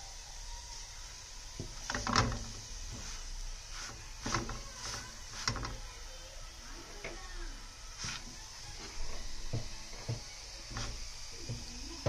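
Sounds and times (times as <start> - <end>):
roti sizzling in fat: 0.0 - 12.0
spatula scraping a frying pan: 1.8 - 5.9, 10.7 - 11.4.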